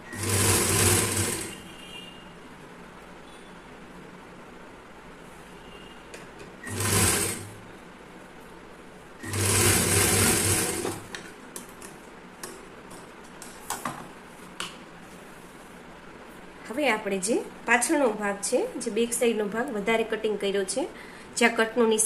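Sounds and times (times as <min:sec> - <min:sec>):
sewing machine stitching: 0:00.0 - 0:01.7, 0:06.6 - 0:07.6, 0:09.2 - 0:11.2.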